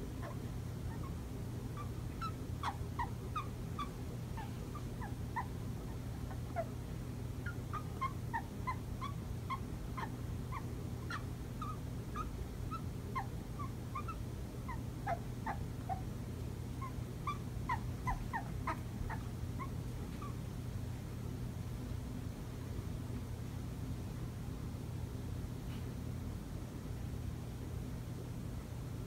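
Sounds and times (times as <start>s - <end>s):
cockatoo chirping: 0.1s - 6.8s, 7.4s - 16.0s, 16.8s - 20.4s.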